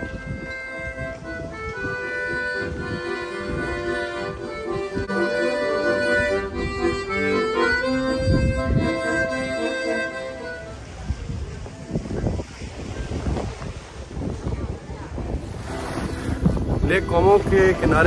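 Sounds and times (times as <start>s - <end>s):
reedy instrumental melody: 0.0s - 11.4s, 15.4s - 18.0s.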